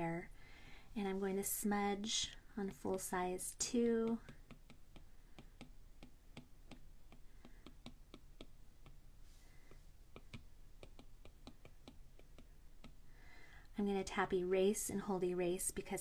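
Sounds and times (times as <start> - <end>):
stylus tip tapping on glass screen: 3.8 - 9.0, 10.1 - 13.0.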